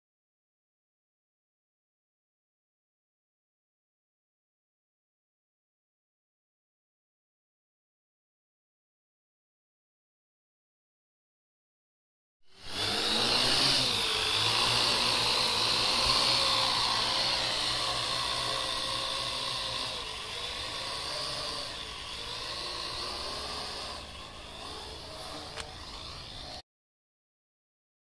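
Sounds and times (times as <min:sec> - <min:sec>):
quadcopter motors whining: 0:12.5 - 0:26.6.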